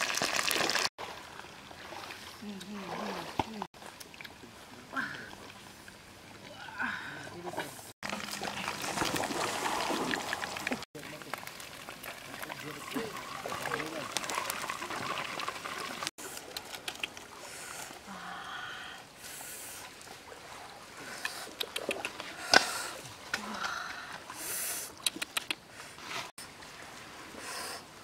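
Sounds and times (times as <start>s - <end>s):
crispy grilled fish crackling: 0.0s - 0.9s.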